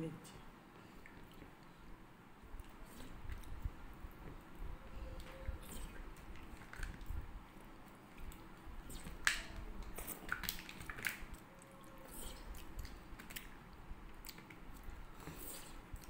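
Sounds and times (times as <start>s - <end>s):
soft mouth smacks and clicks: 8.2s - 11.4s, 14.2s - 16.0s.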